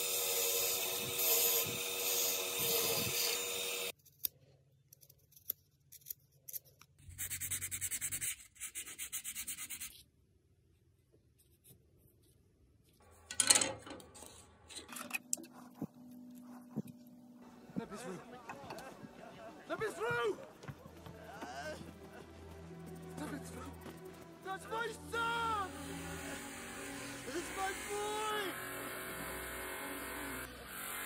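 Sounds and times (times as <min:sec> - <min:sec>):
wood lathe running: 0:00.0 - 0:03.9, 0:25.5 - 0:31.0.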